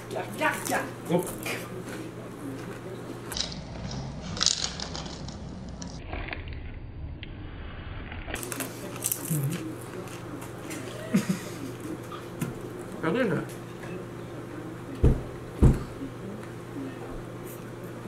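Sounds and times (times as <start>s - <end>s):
crunchy food being chewed: 8.3s - 11.0s.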